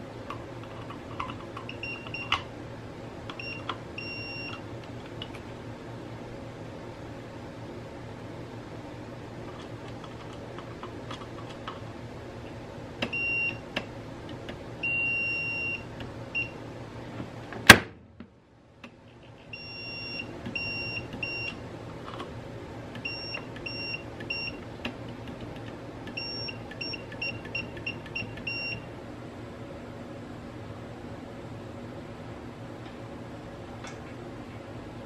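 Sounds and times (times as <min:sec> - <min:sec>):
multimeter beeps: 0:01.7 - 0:02.4, 0:03.4 - 0:04.6, 0:13.1 - 0:13.6, 0:14.8 - 0:15.8, 0:19.5 - 0:21.6, 0:23.0 - 0:24.6, 0:26.2 - 0:28.9.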